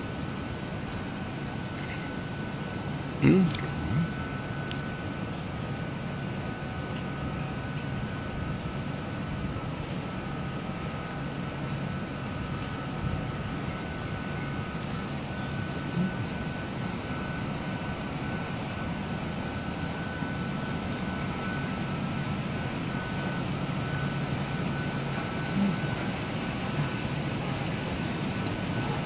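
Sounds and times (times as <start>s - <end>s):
mechanical hum and air rush: 0.0s - 29.0s
faint high tone: 24.7s - 27.0s.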